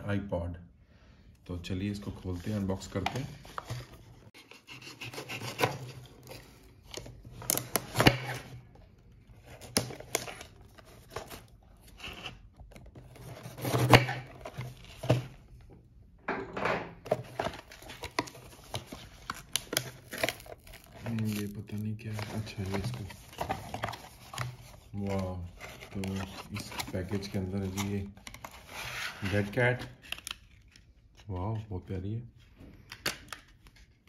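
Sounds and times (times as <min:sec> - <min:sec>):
knife slicing cardboard: 0:04.4 - 0:06.0, 0:13.2 - 0:15.2.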